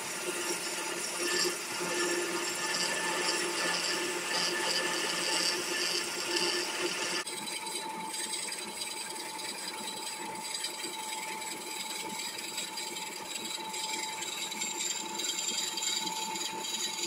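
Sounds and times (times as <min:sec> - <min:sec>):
drill bit rasping into wood: 0:00.0 - 0:07.3
wood lathe motor whine: 0:00.0 - 0:17.0.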